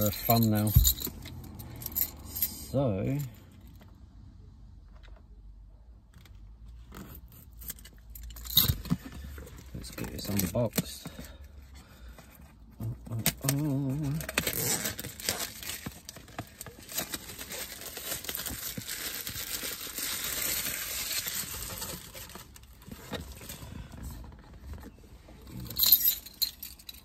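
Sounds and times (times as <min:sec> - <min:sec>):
plastic shrink wrap crinkling: 0:13.4 - 0:23.4.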